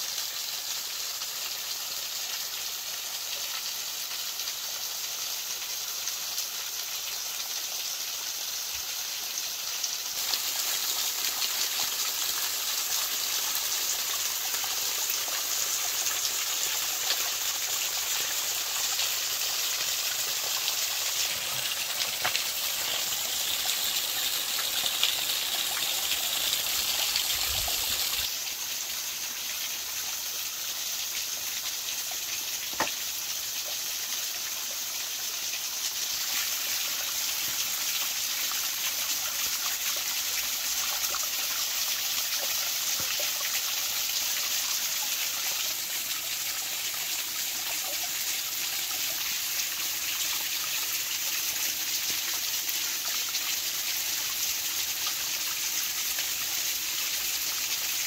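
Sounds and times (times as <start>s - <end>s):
waterfall splashing over rock: 10.1s - 28.4s, 31.6s - 33.8s.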